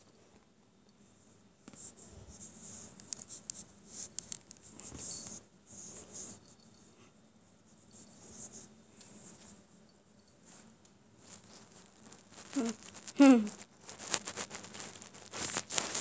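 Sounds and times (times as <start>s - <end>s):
scratchy rustling: 10.4s - 16.0s.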